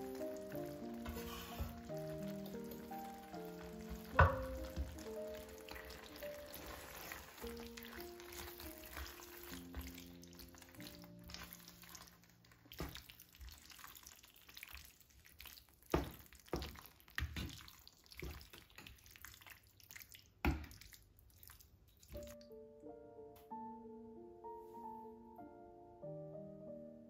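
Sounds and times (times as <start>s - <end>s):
soft background music: 0.0s - 13.8s, 22.2s - 27.0s
wet squelching of stirred pasta: 0.0s - 22.4s
wooden spoon knocking a pan: 0.4s - 10.0s, 15.9s - 18.6s.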